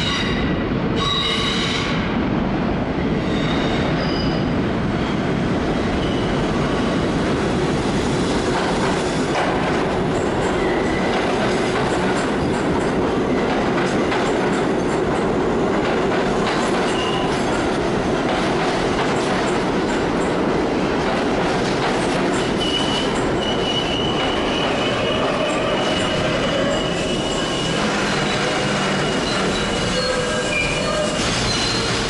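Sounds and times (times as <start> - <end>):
steel wheels on rail: 7.8 - 32.0
high wheel squeal: 22.6 - 32.0.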